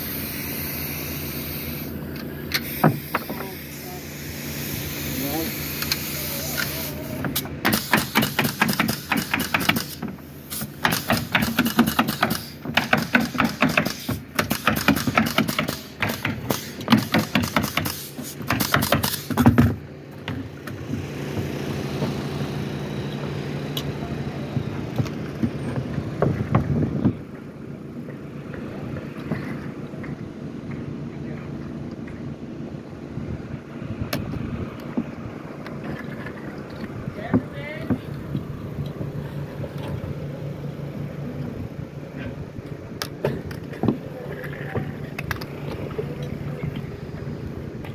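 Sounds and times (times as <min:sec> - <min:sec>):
pneumatic nailer firing: 0:00.0 - 0:19.8
steady machine hum: 0:00.0 - 0:47.9.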